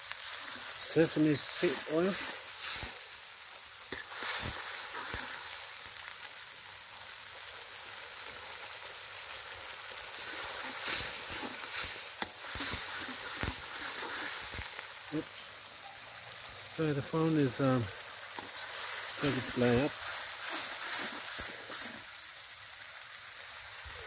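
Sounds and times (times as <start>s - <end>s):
paste sizzling in oil: 0.0s - 24.0s
spoon scraping and knocking wok: 10.2s - 14.8s, 18.4s - 22.0s.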